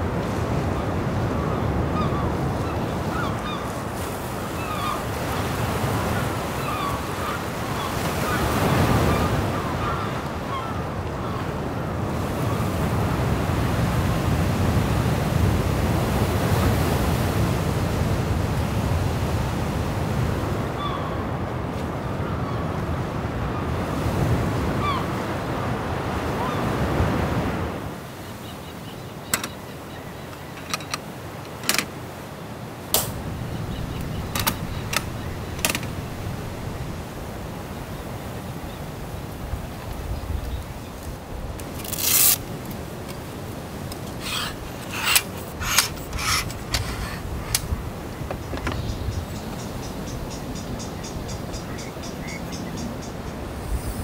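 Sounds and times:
sea waves breaking: 0.0s - 22.0s, 23.1s - 50.2s
clicks and clacks of fittings: 29.3s - 29.6s, 30.4s - 31.9s, 34.3s - 35.9s, 43.9s - 47.7s
straps rustling: 41.6s - 43.2s
long rasp: 44.1s - 47.7s.

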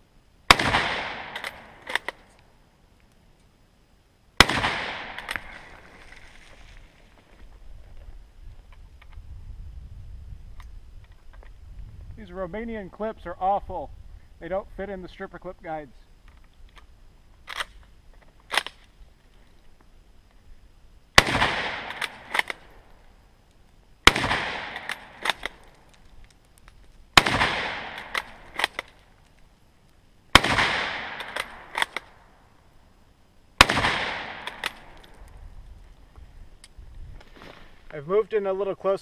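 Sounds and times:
rifle shots with echo: 0.5s - 2.2s, 4.4s - 5.6s, 21.2s - 22.7s, 24.0s - 25.6s, 27.2s - 28.9s, 30.3s - 32.2s, 33.6s - 35.0s.

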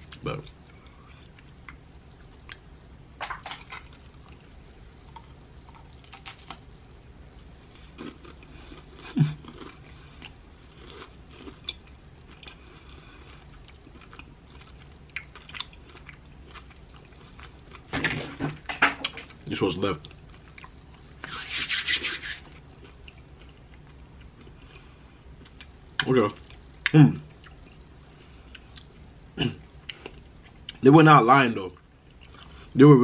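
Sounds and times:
person chewing crisp wafer: 7.7s - 17.9s.

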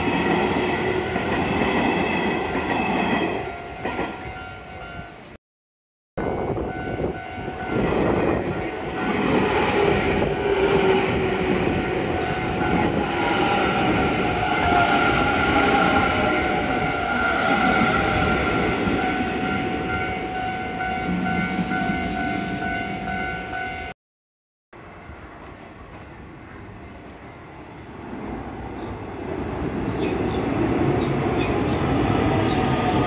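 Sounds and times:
crossing bell ringing: 6.2s - 9.2s, 16.2s - 23.9s.

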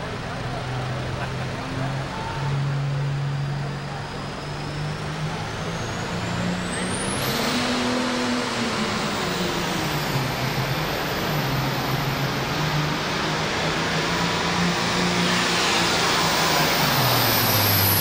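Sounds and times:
diesel tractor engine running: 0.0s - 18.0s
high whine climbing in pitch: 3.4s - 18.0s.

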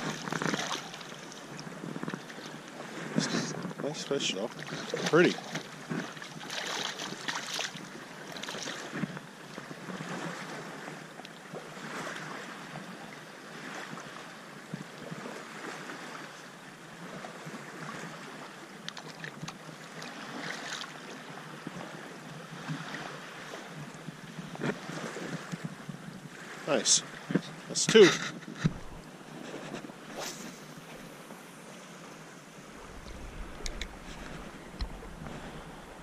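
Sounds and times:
water lapping: 0.0s - 14.3s, 15.0s - 36.0s
fish splashing in water: 4.6s - 8.9s
wind on microphone: 28.1s - 36.0s.

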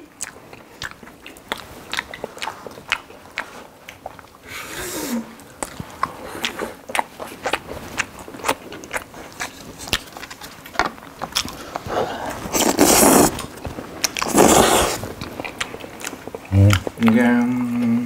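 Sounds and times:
chewing smacks: 0.0s - 17.9s
slurping noodles: 11.6s - 16.5s.

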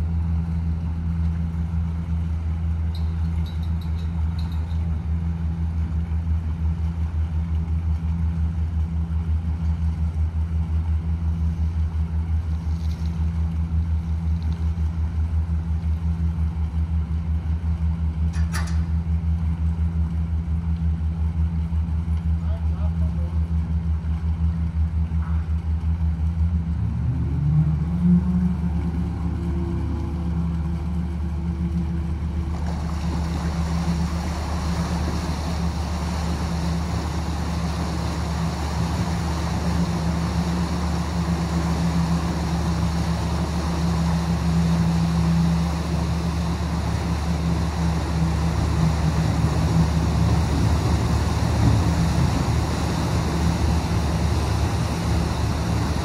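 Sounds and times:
large engine throbbing: 0.0s - 56.0s
steady rushing noise: 31.0s - 56.0s.

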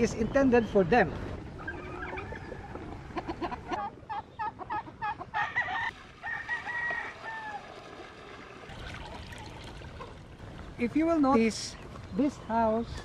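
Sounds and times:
chickens clucking: 1.4s - 5.9s
rooster crowing: 5.3s - 7.7s.

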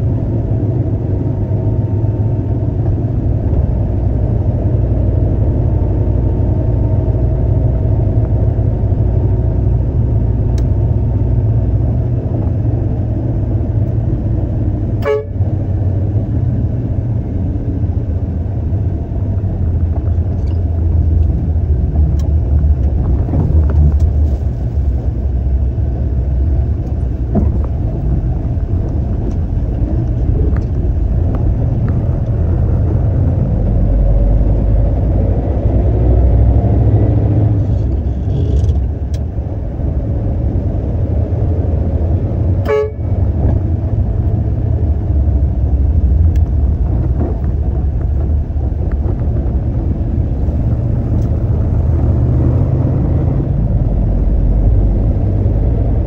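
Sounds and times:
diesel truck engine running: 0.0s - 56.0s
click: 38.6s - 39.3s.

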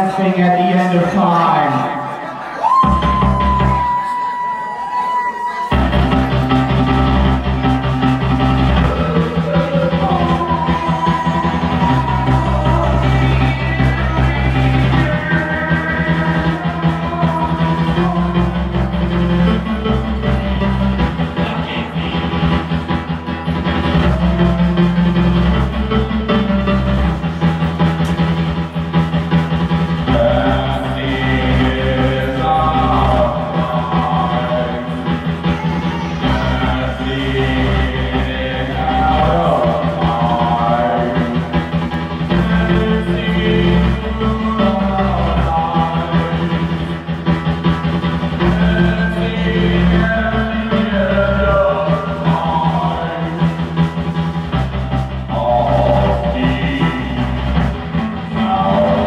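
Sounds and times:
person singing: 0.0s - 59.0s
live band playing: 2.2s - 38.0s
held low bass notes: 5.8s - 59.0s.

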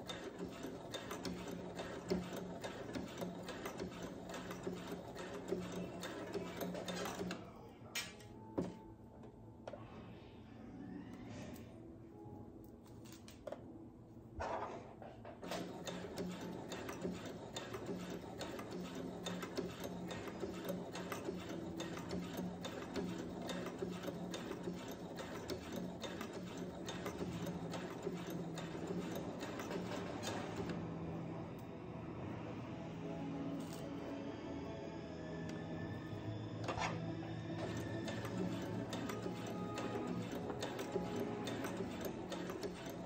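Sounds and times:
sewing machine stitching: 0.0s - 7.5s, 15.4s - 30.8s, 37.6s - 43.0s.

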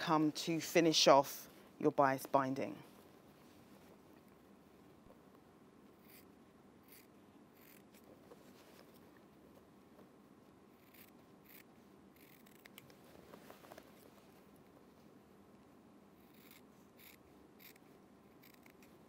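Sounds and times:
small scissors snipping fabric: 6.0s - 8.1s, 10.8s - 12.9s, 16.2s - 17.8s, 18.4s - 18.9s.

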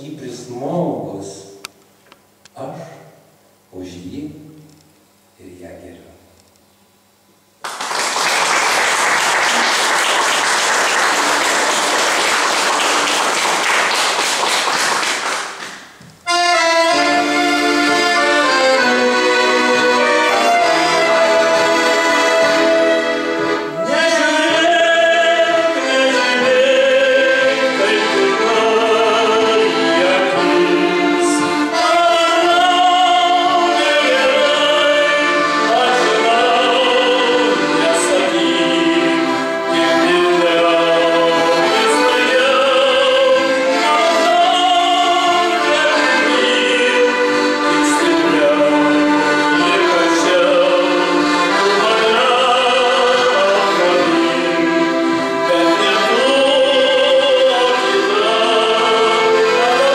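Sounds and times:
audience applauding: 7.6s - 16.0s
sustained instrumental chords: 16.2s - 59.9s.

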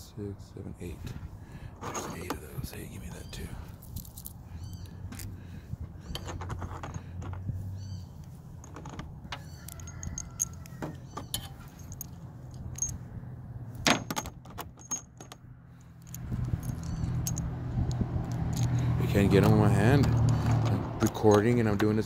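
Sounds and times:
metal bolts clinking: 6.0s - 7.5s, 8.2s - 13.1s, 13.8s - 22.0s.

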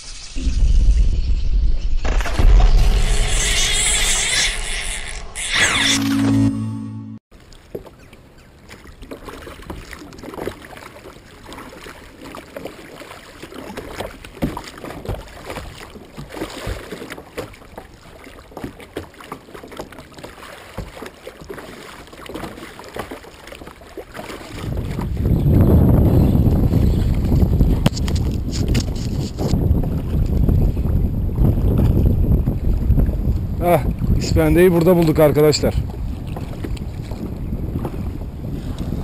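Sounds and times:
paddle splashing in water: 7.4s - 26.0s, 35.8s - 39.0s
wind rumble on microphone: 24.5s - 39.0s.

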